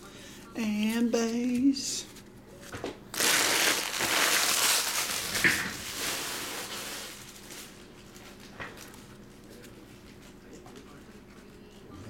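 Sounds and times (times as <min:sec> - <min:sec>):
wrappers crinkling by hand: 0:03.1 - 0:10.4.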